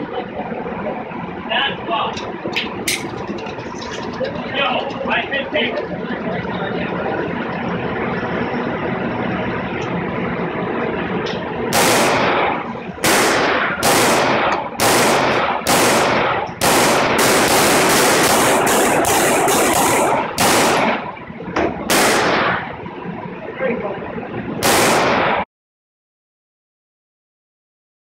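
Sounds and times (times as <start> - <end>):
pistol shots ringing indoors: 11.7 - 21.1, 21.9 - 22.7, 24.6 - 25.4.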